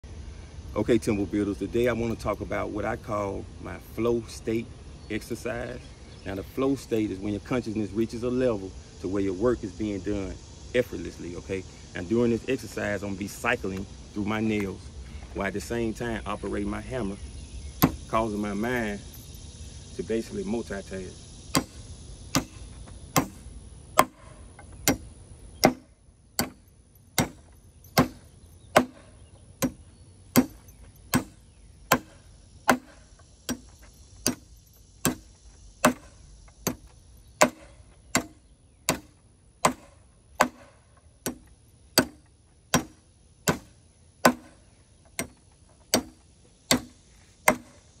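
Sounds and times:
hammer driving nails into wood: 0:37.4 - 0:41.4.

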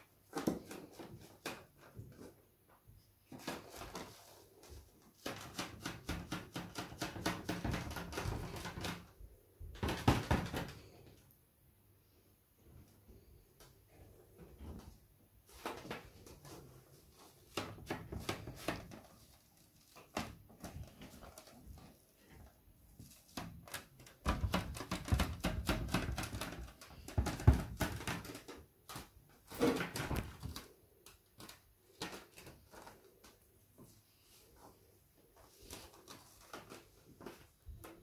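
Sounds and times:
balloon tapping and rubbing canvas: 0:15.7 - 0:30.6.

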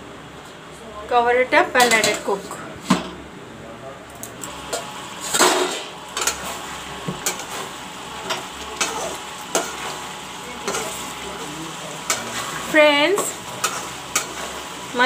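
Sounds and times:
gravy sizzling: 0:04.4 - 0:15.0
metal spoon scraping a pan: 0:04.7 - 0:11.2, 0:12.0 - 0:14.8.

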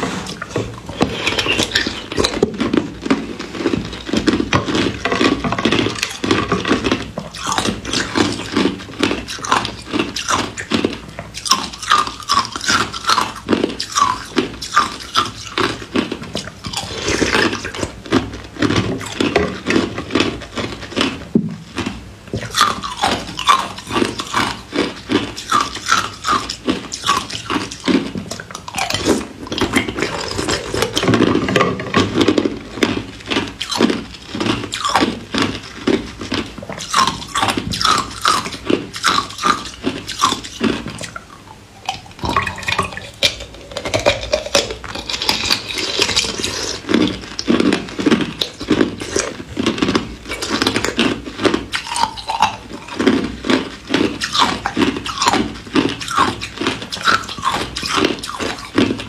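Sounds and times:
crunching ice chunks: 0:41.9 - 0:59.0.

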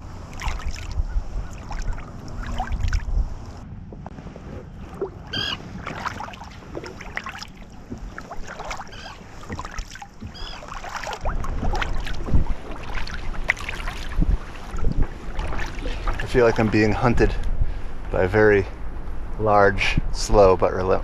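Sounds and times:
paddle splashing in water: 0:00.0 - 0:03.1, 0:04.4 - 0:17.2
wind rumble on microphone: 0:00.0 - 0:21.0.

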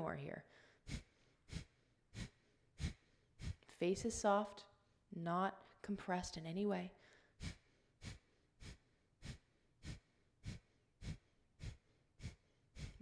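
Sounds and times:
woman's forceful nasal exhales: 0:00.5 - 0:03.8, 0:07.1 - 0:13.0.

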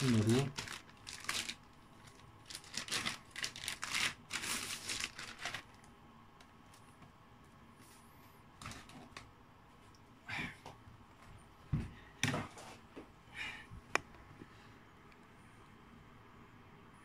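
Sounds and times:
plastic bag crinkling and rustling: 0:00.0 - 0:05.9.

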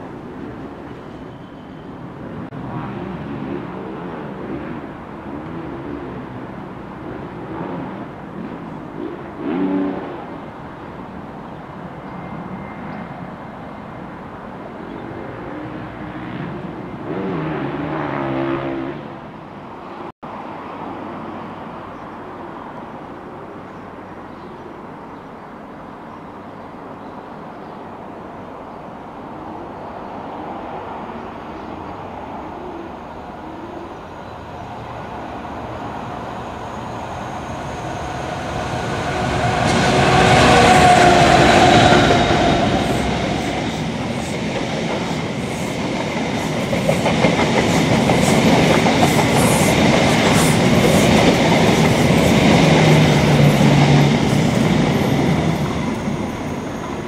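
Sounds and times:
diesel locomotive engine: 0:28.8 - 0:57.0
train moving: 0:29.2 - 0:57.0.

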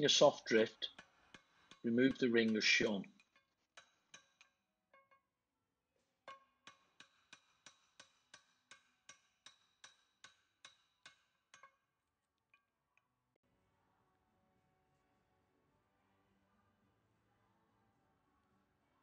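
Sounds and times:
hammer tapping metal: 0:00.0 - 0:04.5, 0:06.3 - 0:11.7.

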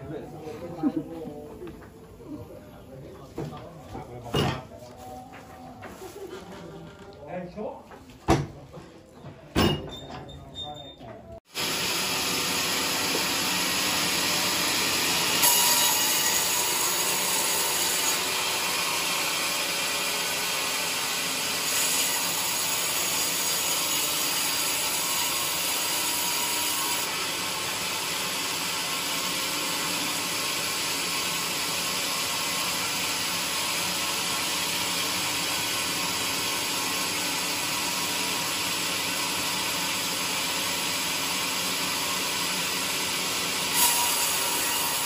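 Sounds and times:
band saw blade sawing log: 0:11.6 - 0:45.0.

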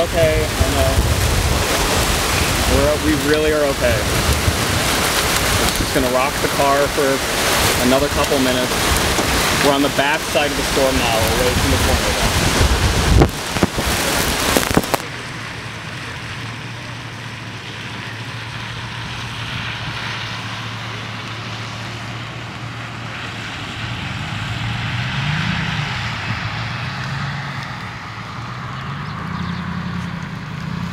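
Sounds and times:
wind buffeting microphone: 0:00.0 - 0:15.1
low vehicle engine hum: 0:00.0 - 0:30.9
steady outdoor hiss: 0:00.0 - 0:30.9.

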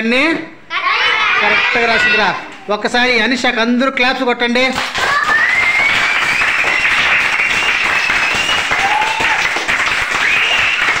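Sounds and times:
children clapping: 0:04.7 - 0:11.0.

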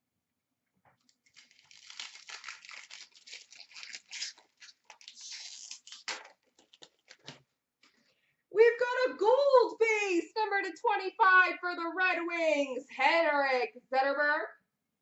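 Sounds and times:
foil wrapper tearing and crinkling: 0:01.0 - 0:07.4.

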